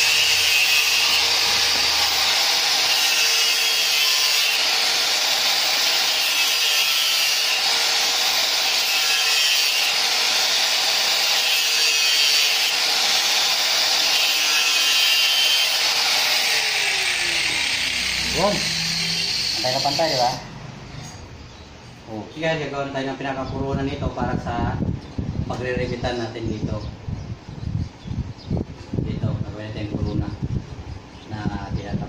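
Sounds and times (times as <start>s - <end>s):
angle grinder cutting plastic pipe: 0.0s - 20.4s.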